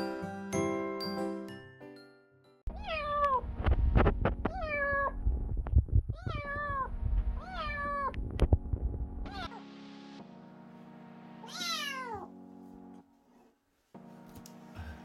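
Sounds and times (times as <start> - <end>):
kitten meowing: 2.7 - 3.4, 4.5 - 5.2, 6.1 - 8.2, 9.3 - 9.6, 11.4 - 12.3.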